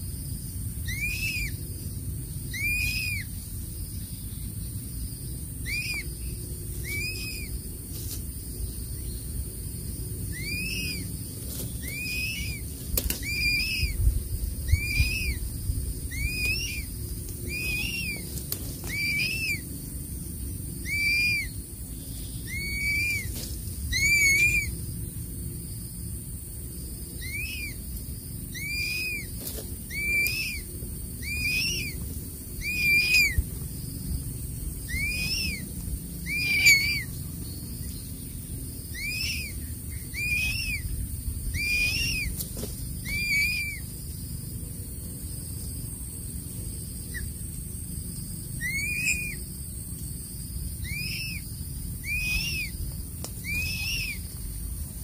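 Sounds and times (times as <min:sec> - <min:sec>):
eagle chick whistled calls: 0:00.8 - 0:01.6, 0:02.5 - 0:03.3, 0:05.6 - 0:07.6, 0:10.3 - 0:11.1, 0:11.8 - 0:19.7, 0:20.8 - 0:24.8, 0:27.2 - 0:27.8, 0:28.5 - 0:32.0, 0:32.6 - 0:33.5, 0:34.8 - 0:37.2, 0:38.9 - 0:43.8, 0:48.6 - 0:49.5, 0:50.8 - 0:54.3.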